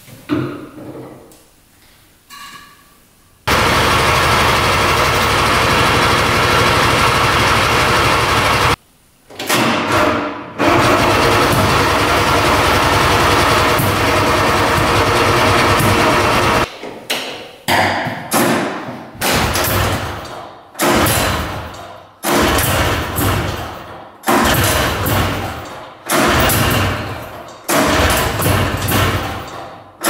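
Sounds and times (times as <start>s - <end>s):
two-stroke engine revving: 3.5s - 8.8s.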